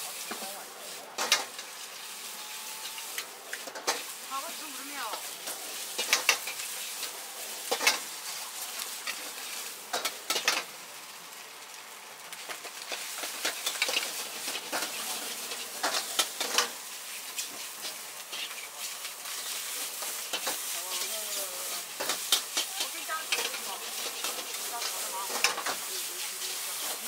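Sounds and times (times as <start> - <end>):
food sizzling in a wok: 0.0 - 27.0
metal ladle scraping a wok: 12.9 - 21.0, 21.6 - 27.0.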